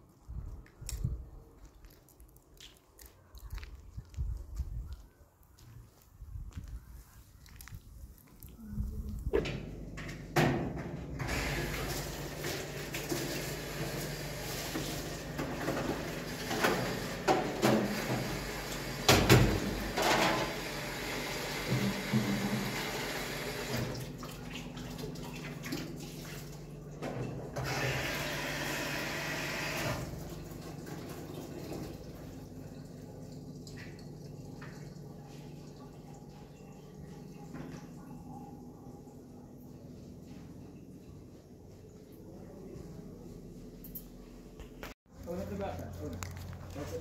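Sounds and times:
water running: 11.2s - 38.2s.

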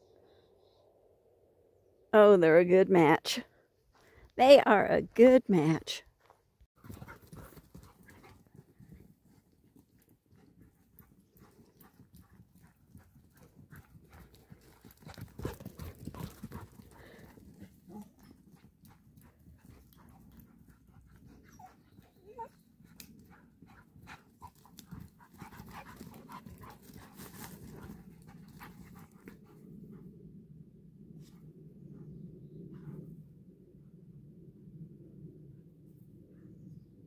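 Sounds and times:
dogs panting: 6.8s - 30.1s.

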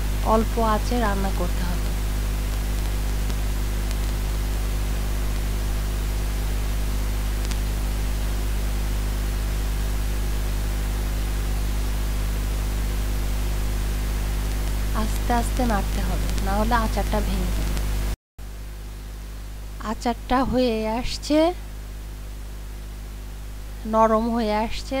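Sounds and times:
steady hiss: 0.0s - 19.8s
low electrical hum: 0.0s - 25.0s.

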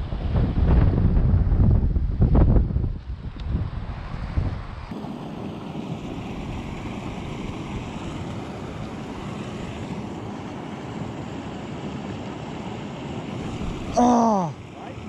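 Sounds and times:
wind blowing across microphone: 0.0s - 10.3s, 13.2s - 14.0s.

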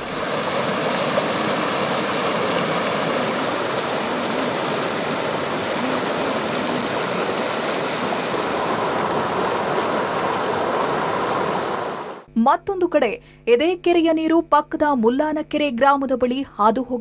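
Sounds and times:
water rushing over rocks: 0.0s - 12.3s.

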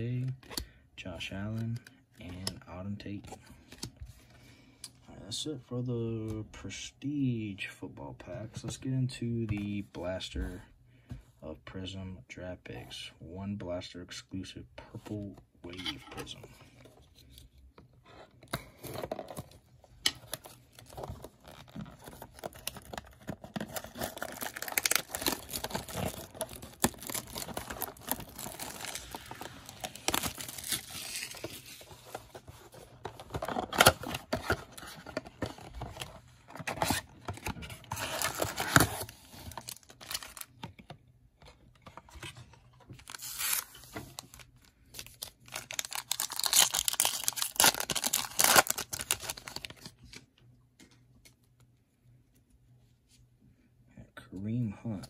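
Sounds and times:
foil packs crinkling and rustling: 20.2s - 40.5s, 43.0s - 50.0s
cardboard box being torn open: 22.0s - 31.6s, 45.5s - 49.7s
foil pack ripped open: 23.7s - 31.4s, 45.5s - 49.7s.

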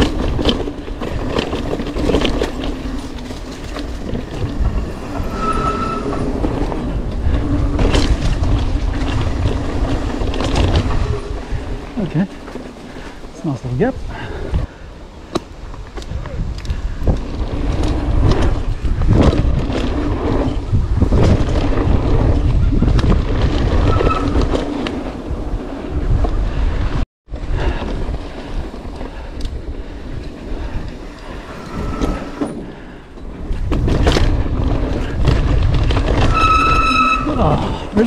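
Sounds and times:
bike knocking and rattling: 0.0s - 13.5s, 14.2s - 38.0s
bike tyre rumble: 0.0s - 38.0s
wind buffeting microphone: 0.0s - 38.0s
short high squeals: 5.0s - 6.5s, 31.5s - 32.5s, 36.3s - 37.6s.

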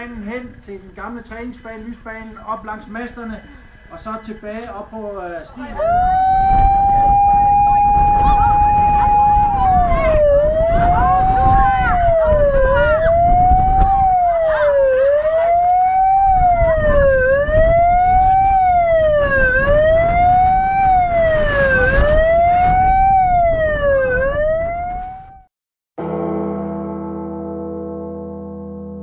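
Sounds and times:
siren wailing: 5.7s - 25.5s
children shouting: 7.8s - 17.1s.

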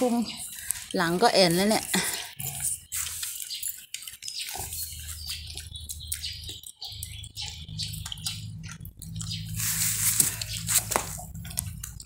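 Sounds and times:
pig chewing dry feed: 0.1s - 12.0s
low steady hum: 7.0s - 12.0s.

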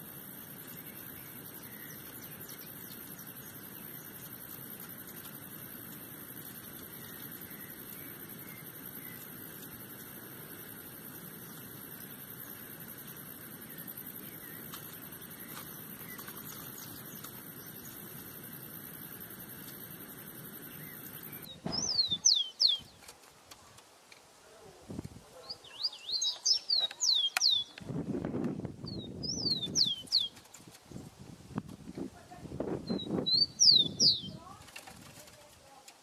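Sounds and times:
open-air hiss: 0.0s - 36.0s
sparrow whistling song: 20.8s - 22.9s, 25.7s - 27.7s, 28.9s - 30.4s, 32.8s - 34.4s
faint bird chirps: 25.4s - 27.8s, 32.8s - 34.6s.

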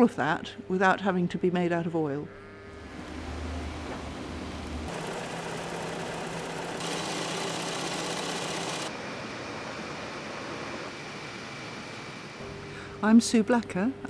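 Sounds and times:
mill machinery hum and whir: 2.6s - 13.2s.

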